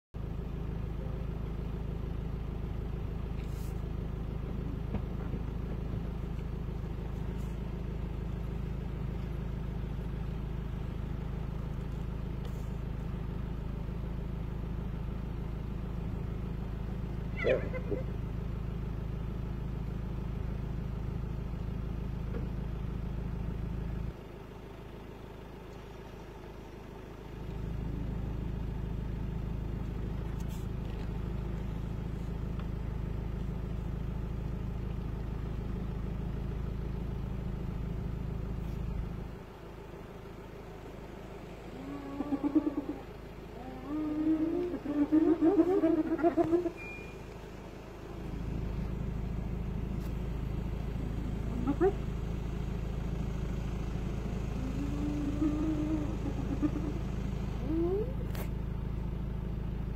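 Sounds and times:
vehicle engine idling: 0:00.0 - 0:59.9.

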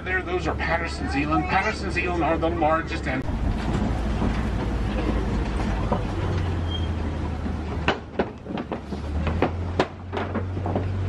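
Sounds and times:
road noise: 0:00.0 - 0:11.0
truck engine hum: 0:00.0 - 0:11.0
wheels knocking on wooden planks: 0:03.3 - 0:11.0.

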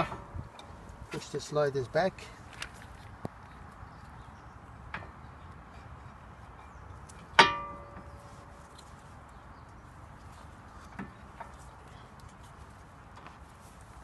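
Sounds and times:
metal clank with ringing: 0:07.3 - 0:08.2.

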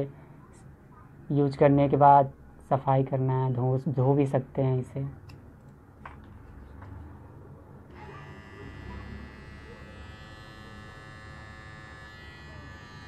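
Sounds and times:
beard trimmer whine: 0:07.9 - 0:13.0.

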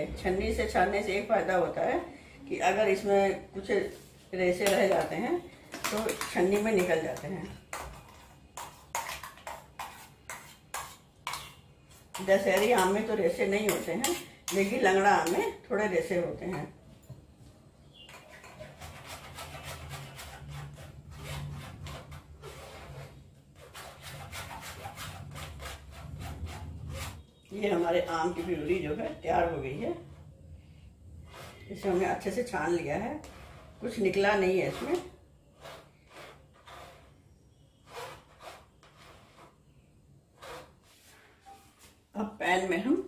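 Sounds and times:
spoon scraping plastic strainer: 0:03.9 - 0:15.4, 0:17.9 - 0:28.7, 0:33.2 - 0:41.4.

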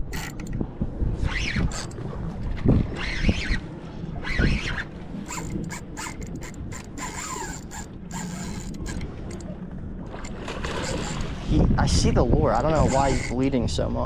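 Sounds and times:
fishing reel whining: 0:00.0 - 0:00.6, 0:01.2 - 0:02.2, 0:02.9 - 0:09.5, 0:10.2 - 0:11.4, 0:12.6 - 0:13.5
wind thuds on microphone: 0:00.0 - 0:07.2, 0:08.4 - 0:14.0.

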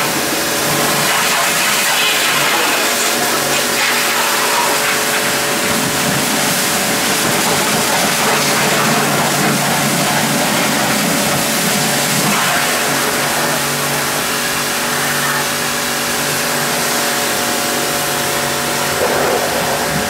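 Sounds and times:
pressure washer motor humming: 0:00.0 - 0:20.0
water jet hissing: 0:00.0 - 0:20.0.

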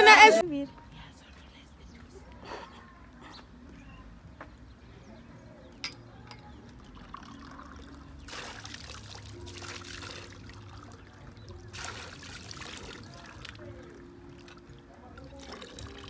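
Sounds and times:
tap water running into container: 0:06.8 - 0:13.7, 0:14.3 - 0:16.0.

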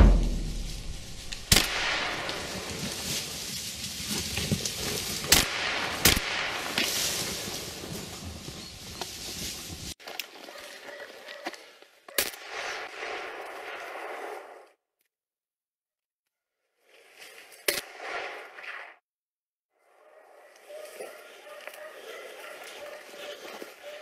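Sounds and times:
gunshots: 0:00.0 - 0:02.9, 0:05.2 - 0:06.9.

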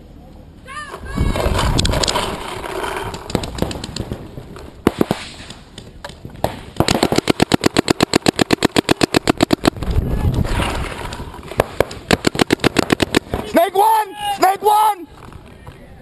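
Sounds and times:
paintball marker firing: 0:04.8 - 0:10.0, 0:11.4 - 0:13.6.

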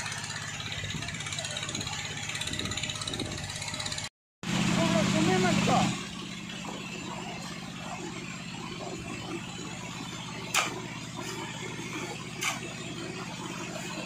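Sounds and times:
engine droning: 0:00.0 - 0:14.0
slurry splashing from pipe: 0:06.4 - 0:14.0.

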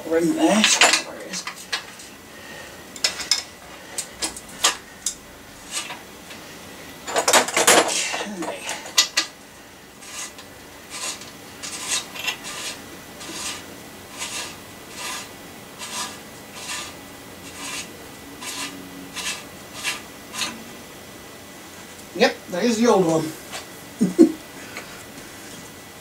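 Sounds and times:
metal tool rasping scrapes: 0:03.0 - 0:06.0, 0:10.0 - 0:20.6.

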